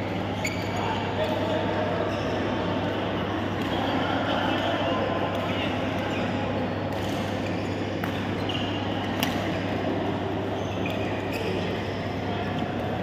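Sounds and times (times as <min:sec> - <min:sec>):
shoes squeaking on court: 0:00.4 - 0:01.4, 0:07.0 - 0:09.7, 0:10.4 - 0:12.2.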